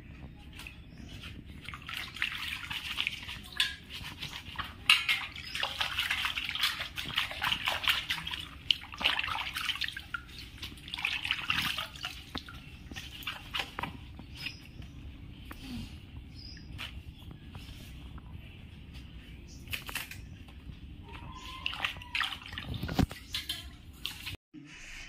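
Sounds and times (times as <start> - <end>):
water splashing in bowl: 1.3 - 14.7, 21.1 - 24.4
water dripping: 1.6 - 14.7.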